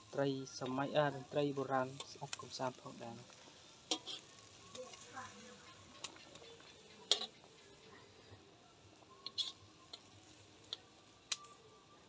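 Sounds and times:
faint sizzle: 0.0s - 12.0s
metal tongs clicking against wok: 1.9s - 2.5s, 3.8s - 5.0s, 5.9s - 7.5s, 9.2s - 11.6s.

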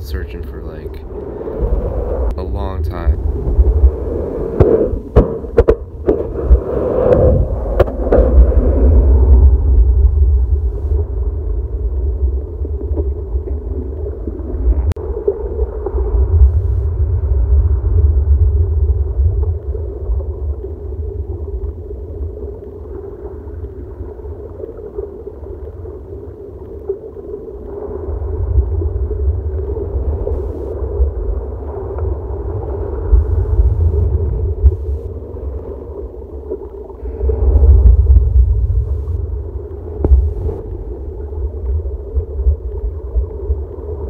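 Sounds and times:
muffled underwater surf rumble: 0.0s - 44.0s.

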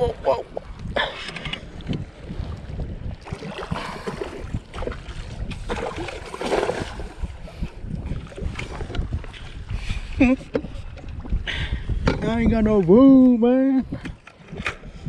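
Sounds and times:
water slapping against kayak hull: 0.0s - 9.8s
wind rumbling on microphone: 0.0s - 15.0s.

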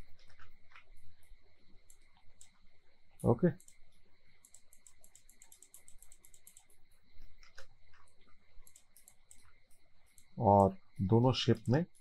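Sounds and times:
faint computer mouse clicks: 1.8s - 2.6s, 3.2s - 6.8s, 7.4s - 10.4s.

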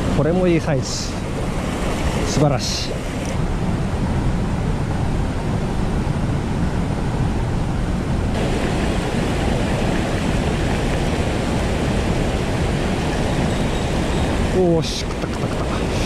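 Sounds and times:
stream rushing over boulders: 0.0s - 3.5s, 8.3s - 16.0s.

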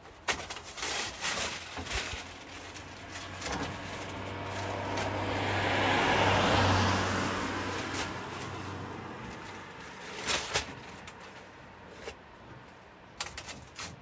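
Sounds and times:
motor vehicle passing: 1.9s - 11.2s.

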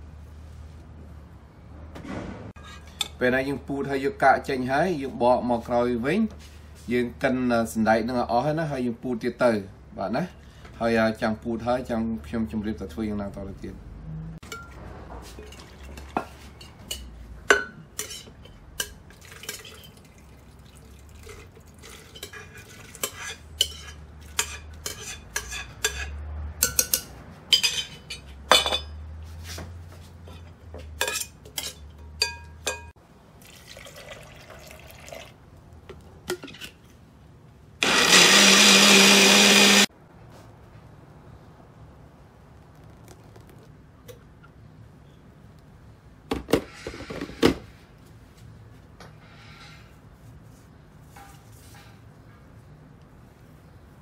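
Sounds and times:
electric blender grinding: 37.8s - 39.9s.

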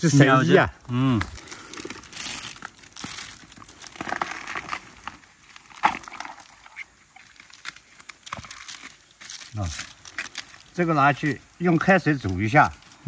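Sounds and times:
bamboo husk rustling and crackling: 0.0s - 13.0s
plastic bag handled: 1.2s - 5.2s.

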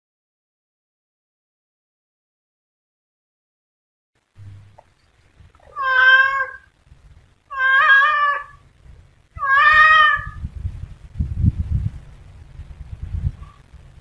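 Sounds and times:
cat meowing: 5.6s - 6.7s, 7.5s - 8.6s, 9.4s - 10.4s.

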